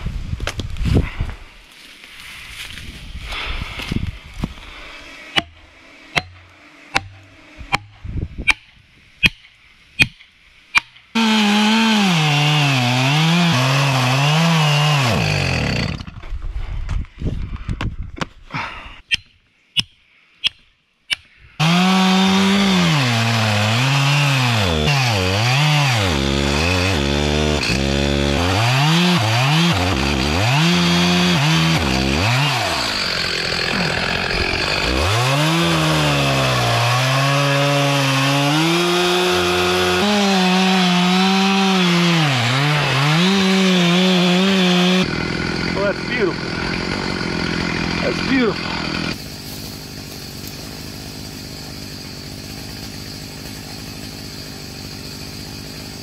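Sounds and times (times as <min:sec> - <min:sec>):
chainsaw cutting wood: 0:05.3 - 0:07.9, 0:10.8 - 0:16.2, 0:21.6 - 0:56.0.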